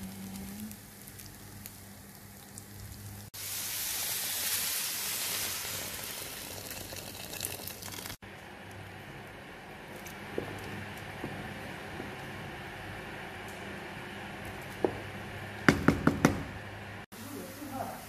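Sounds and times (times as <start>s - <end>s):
grains sizzling in a pan: 0.0s - 8.2s
liquid pouring: 5.0s - 8.2s.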